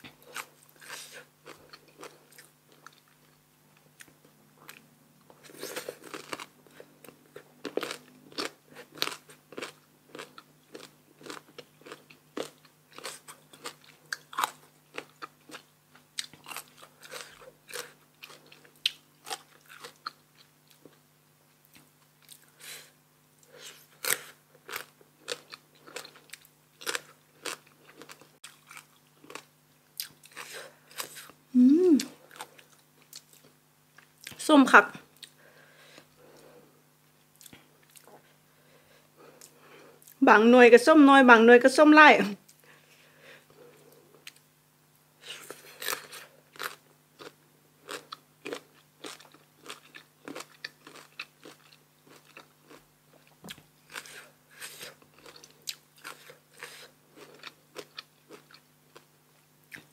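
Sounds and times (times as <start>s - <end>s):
mango being bitten and chewed: 23.4s - 31.4s, 45.2s - 59.9s.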